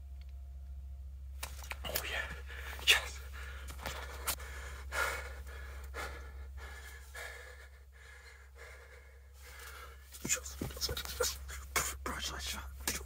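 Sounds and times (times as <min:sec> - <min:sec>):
man breathing hard and gasping: 0:02.0 - 0:11.8.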